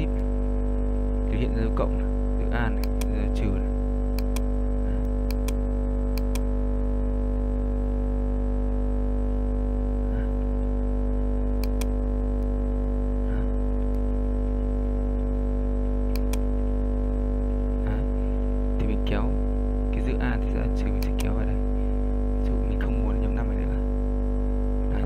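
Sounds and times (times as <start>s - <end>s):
electrical hum: 0.0s - 25.0s
computer mouse clicks: 2.8s - 3.2s, 4.1s - 6.5s, 11.6s - 12.5s, 16.1s - 16.5s, 21.0s - 21.4s.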